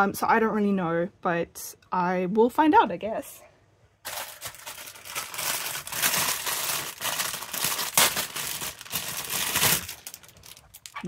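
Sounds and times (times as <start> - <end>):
plastic packaging crinkling: 4.0 - 11.0.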